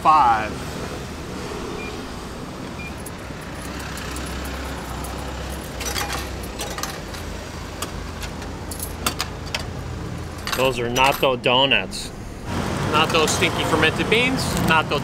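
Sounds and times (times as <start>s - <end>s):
street traffic: 0.0s - 15.0s
vending mechanism humming: 0.7s - 12.9s
vending machine beeps: 2.8s - 3.1s.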